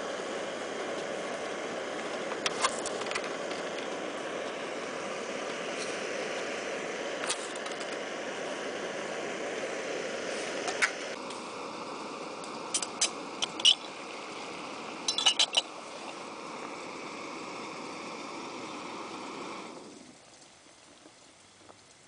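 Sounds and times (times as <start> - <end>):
steady hiss: 0.0 - 22.0
metal cookware clinking: 15.1 - 15.7.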